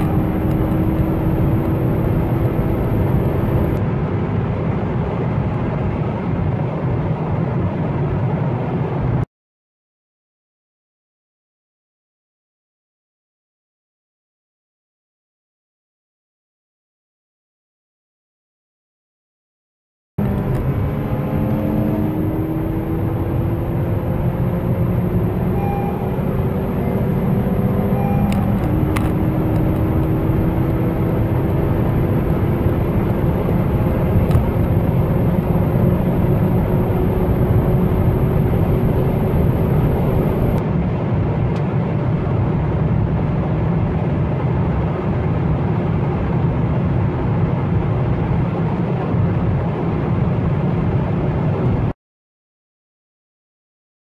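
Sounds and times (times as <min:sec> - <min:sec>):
car engine accelerating: 0:00.0 - 0:03.8, 0:20.2 - 0:40.6
road and wind rumble: 0:00.0 - 0:09.3, 0:20.2 - 0:52.0.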